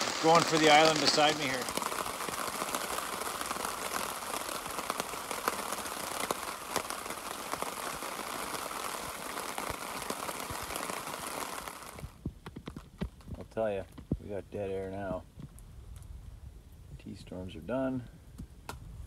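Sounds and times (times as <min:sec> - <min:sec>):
rain on plastic tarp: 0:00.0 - 0:16.1.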